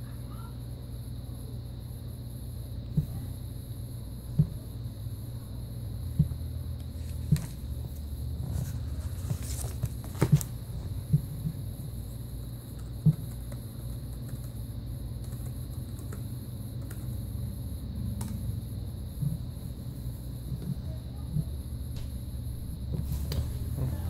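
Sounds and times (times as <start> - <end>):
low steady hum: 0.0 - 24.0
laptop handled knocks and clicks: 9.3 - 11.3.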